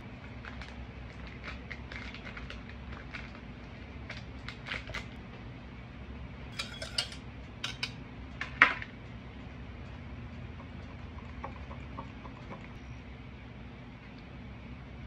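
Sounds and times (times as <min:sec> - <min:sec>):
steady low hum: 0:00.0 - 0:15.0
utensils clinking against dishes: 0:06.5 - 0:08.0.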